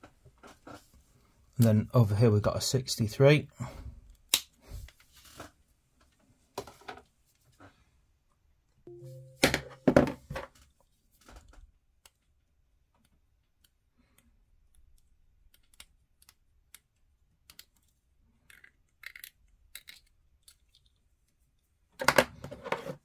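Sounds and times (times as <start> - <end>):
small plastic part clicks: 13.0 - 17.9.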